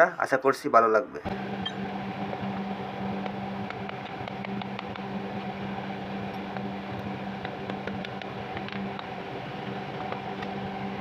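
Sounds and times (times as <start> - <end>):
steady machine hum: 1.1 - 11.0.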